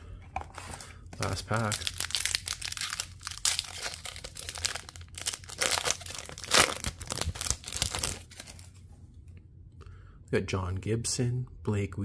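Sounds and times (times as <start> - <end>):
plastic wrapper tearing and crinkling: 1.2 - 8.8.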